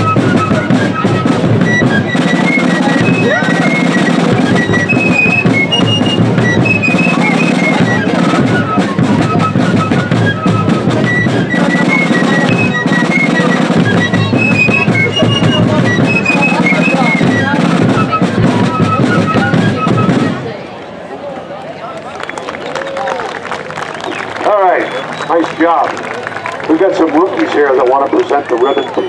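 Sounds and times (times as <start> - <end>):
bass drum beats: 0.0 - 20.4
snare drum rolls: 0.0 - 20.5, 23.7 - 29.0
shrill fifes playing melody: 0.0 - 20.6, 22.4 - 29.0.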